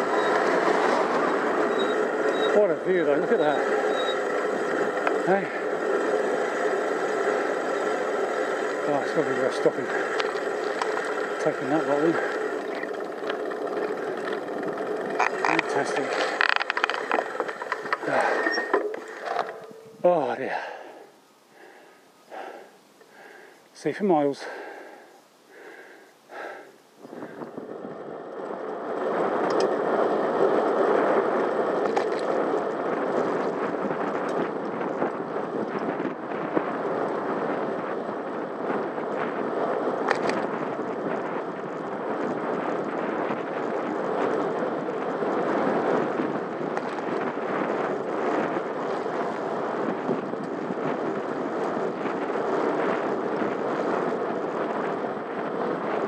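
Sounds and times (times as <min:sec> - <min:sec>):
bicycle tyres on tarmac: 0:00.0 - 0:56.0
wind on microphone: 0:24.5 - 0:56.0.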